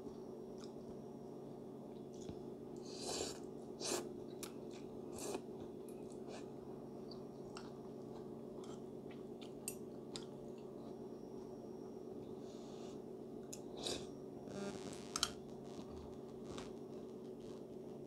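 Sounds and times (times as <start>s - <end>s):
soft chewing: 0.0s - 1.0s, 1.8s - 11.0s
steady low hum: 0.0s - 18.0s.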